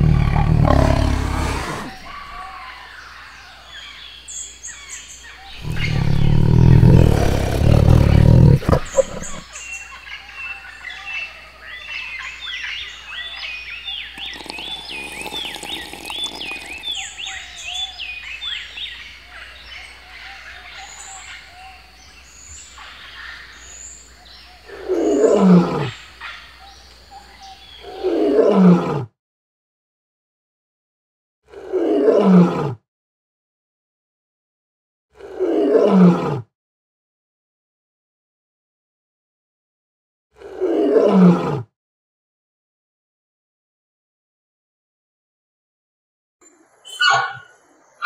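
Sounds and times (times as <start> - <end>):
lion roaring: 0.0 - 2.4, 5.6 - 9.4
tiger growling: 0.0 - 2.5, 5.5 - 9.5
birds chirping: 0.0 - 28.1, 46.4 - 48.0.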